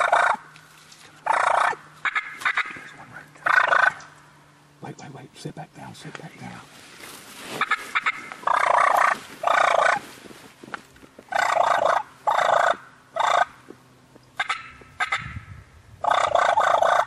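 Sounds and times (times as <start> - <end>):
turkey gobbling: 0.0 - 0.5, 1.2 - 4.2, 7.5 - 10.1, 11.3 - 13.6, 14.4 - 15.4, 16.0 - 17.0.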